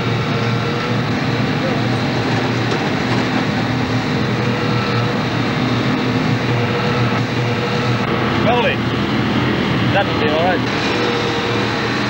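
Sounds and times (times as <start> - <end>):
heavy rail machinery running: 0.0 - 12.0.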